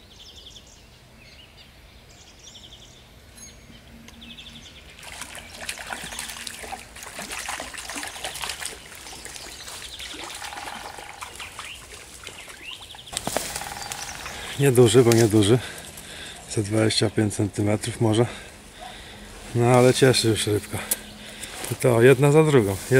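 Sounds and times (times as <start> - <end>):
bird chirps: 0.1 - 5.0, 8.2 - 17.2
fish splashing in water: 4.9 - 16.5.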